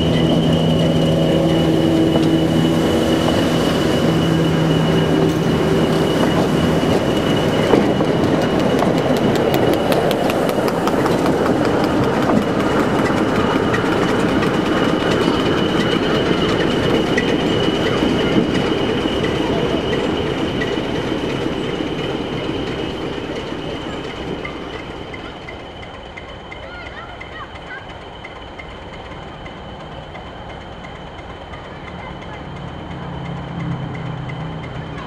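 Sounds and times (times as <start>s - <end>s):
high-pitched whine: 0.0s - 26.0s
train rumbling past: 0.0s - 35.0s
train wheels clicking over rail joint: 0.0s - 35.0s.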